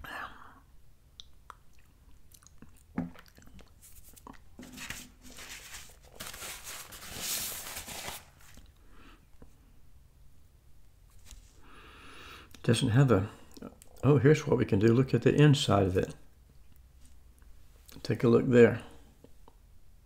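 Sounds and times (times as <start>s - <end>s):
mouth noises of eating: 1.1s - 4.6s.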